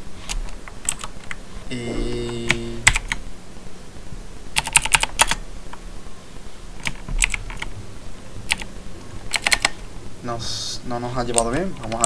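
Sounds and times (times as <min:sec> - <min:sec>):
keyboard keys clicking: 0:02.5 - 0:03.2.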